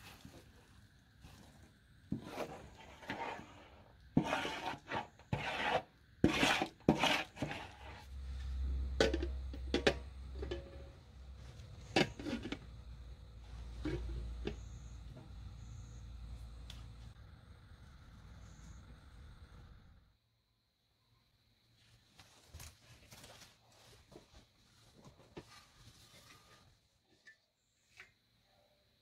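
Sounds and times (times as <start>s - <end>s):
spatula scraping metal pot: 2.1s - 8.2s, 8.8s - 10.9s, 11.8s - 12.7s, 13.6s - 15.0s.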